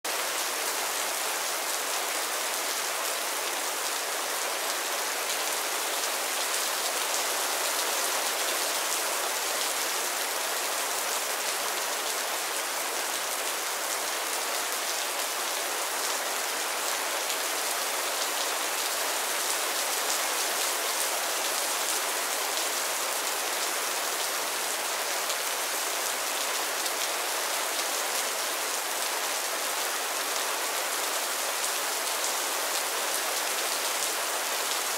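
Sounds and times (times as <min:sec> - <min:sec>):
steady rain patter: 0:00.0 - 0:34.9.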